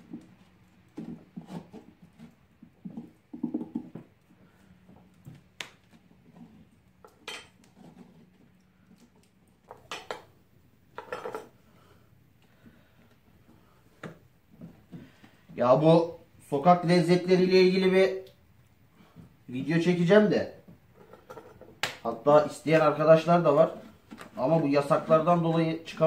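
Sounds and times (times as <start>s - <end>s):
scraping inside a pumpkin: 0.0s - 3.2s, 7.7s - 8.6s.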